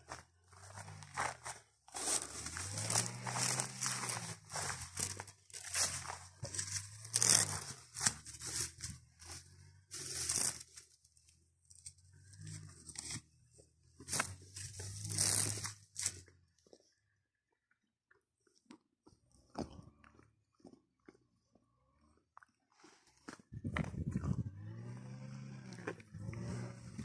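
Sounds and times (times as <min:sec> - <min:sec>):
dry grass crunching and rustling: 0:00.0 - 0:11.0, 0:14.0 - 0:16.3.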